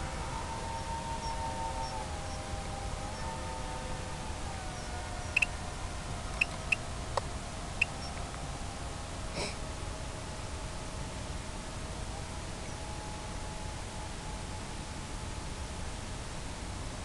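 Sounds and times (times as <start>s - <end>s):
constant hiss: 0.0s - 17.0s.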